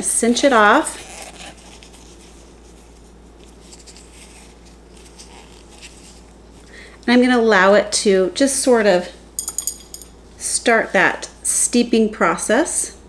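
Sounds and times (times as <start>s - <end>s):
low steady hum: 0.0s - 13.0s
cloth bag drawstring rustling: 0.1s - 6.7s.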